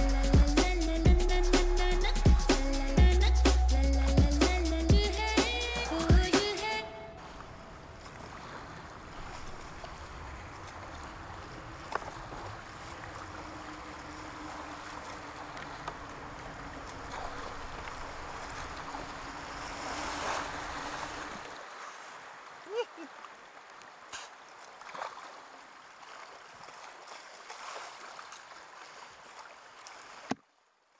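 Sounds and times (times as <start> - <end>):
whitewater rushing: 9.0 - 21.7.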